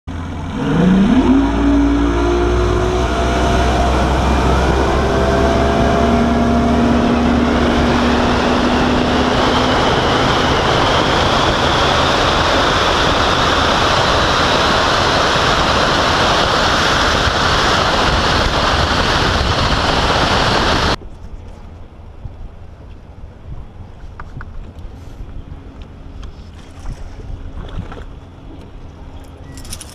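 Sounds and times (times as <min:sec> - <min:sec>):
outboard motor revving: 0:00.1 - 0:21.0
wind and water rush: 0:00.2 - 0:21.0, 0:23.4 - 0:29.9
wind on microphone: 0:00.3 - 0:22.6.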